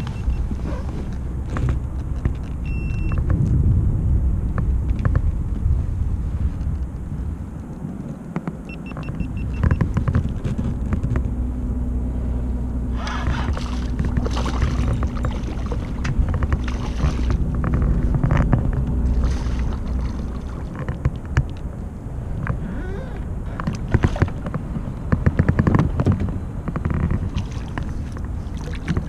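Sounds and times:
low rumble and hum: 0:00.0 - 0:29.0
fish splashing at the surface: 0:13.4 - 0:17.4, 0:19.1 - 0:20.8.

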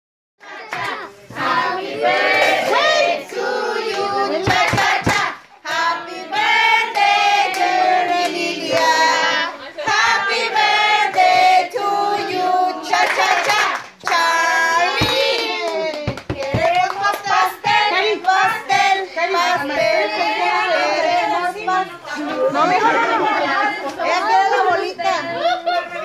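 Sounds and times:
group singing a celebration song: 0:00.4 - 0:25.4
hand clapping: 0:04.4 - 0:05.8, 0:14.9 - 0:18.9.

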